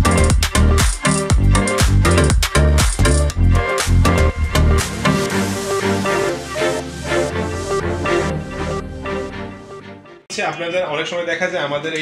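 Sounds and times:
upbeat electronic dance music: 0:00.0 - 0:09.4.

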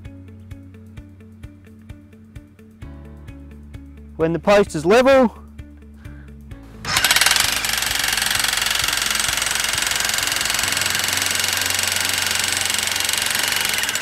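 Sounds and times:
electric jackhammer pounding steel pile: 0:06.8 - 0:14.0.

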